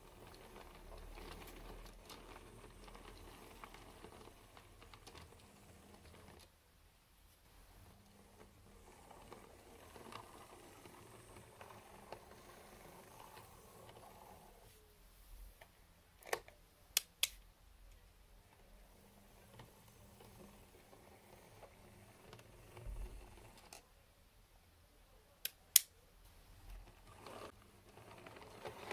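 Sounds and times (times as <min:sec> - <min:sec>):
model train motor whir: 0:00.0 - 0:06.4, 0:07.6 - 0:14.7, 0:18.9 - 0:23.8, 0:26.7 - 0:28.9.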